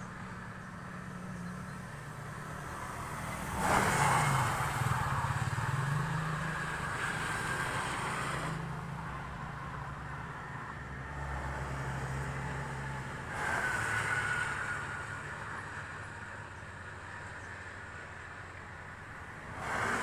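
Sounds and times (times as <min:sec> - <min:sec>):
distant traffic hum: 0:00.0 - 0:20.0
car passing close: 0:02.4 - 0:09.6, 0:10.8 - 0:16.2, 0:19.3 - 0:20.0.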